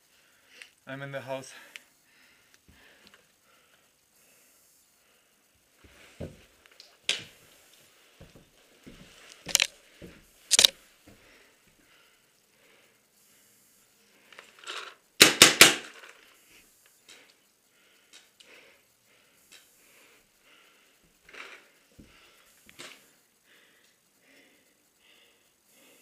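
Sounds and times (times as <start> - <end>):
paintball gun shots: 15.2 - 16.0.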